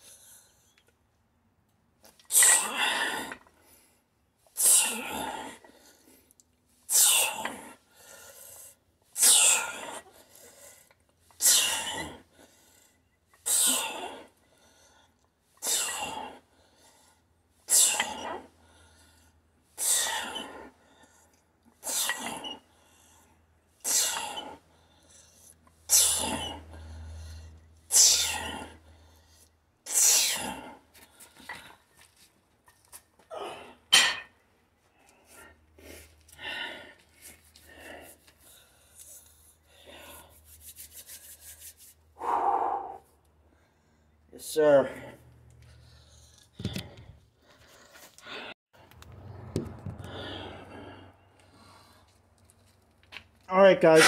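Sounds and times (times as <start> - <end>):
man exhaling forcefully through teeth: 42.2 - 43.0
weak breath: 42.2 - 44.2.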